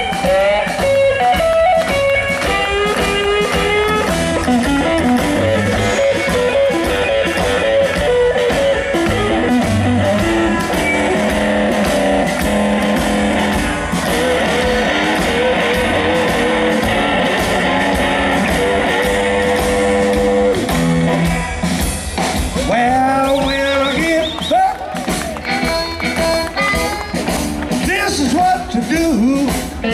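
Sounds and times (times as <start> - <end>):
electric guitar lead lines: 0.0 - 21.9
steady drum beat: 0.0 - 29.9
upright bass: 0.0 - 29.9.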